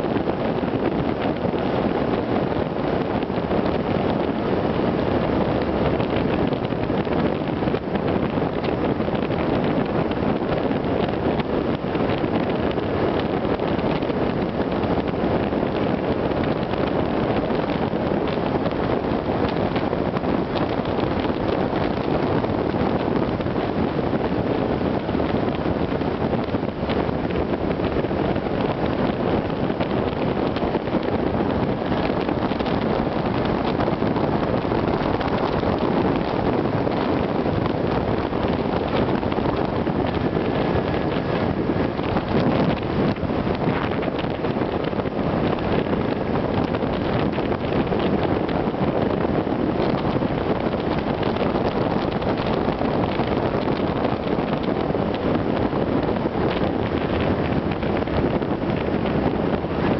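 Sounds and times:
wind rushing over microphone: 0:00.0 - 0:59.9.

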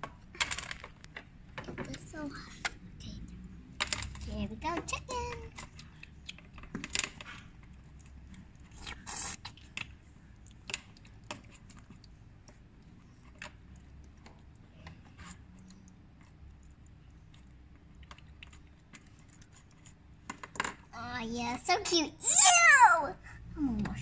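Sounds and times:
plastic toys clicking on table: 0:00.0 - 0:08.8, 0:09.5 - 0:12.6, 0:16.8 - 0:20.9.

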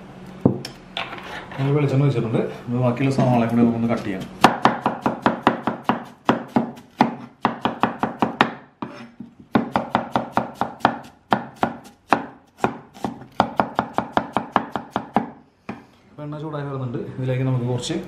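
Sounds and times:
knife chopping on wooden board: 0:04.4 - 0:15.8.

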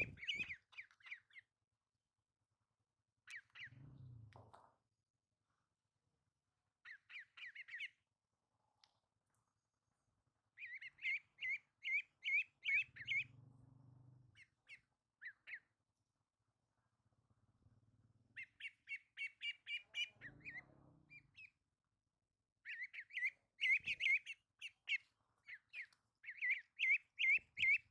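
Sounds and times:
ducklings peeping: 0:00.0 - 0:01.5, 0:03.2 - 0:04.6, 0:06.8 - 0:08.0, 0:10.5 - 0:13.4, 0:14.2 - 0:15.8, 0:18.3 - 0:21.7, 0:22.6 - 0:27.9.

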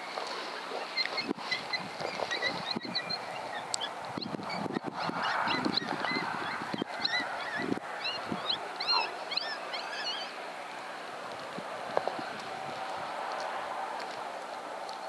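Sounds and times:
high animal calls: 0:00.4 - 0:10.9.

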